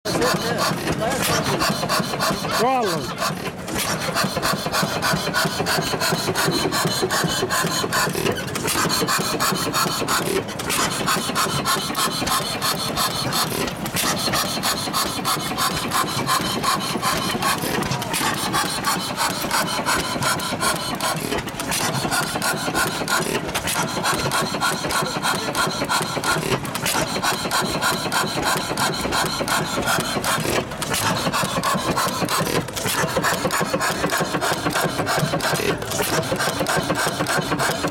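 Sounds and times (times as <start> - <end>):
stationary engine clattering: 0.1 - 37.9.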